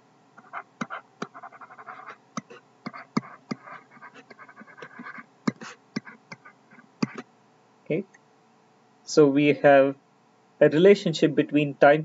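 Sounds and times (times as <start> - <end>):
scratchy pen strokes: 0.4 - 7.2
stylus tapping on a screen: 0.4 - 7.3.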